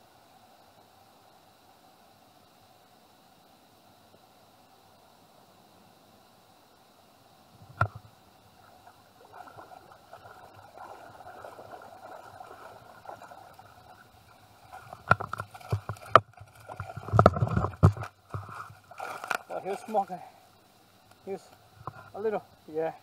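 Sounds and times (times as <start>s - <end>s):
water sloshing around legs: 8.6s - 20.0s
splashes: 8.6s - 20.1s.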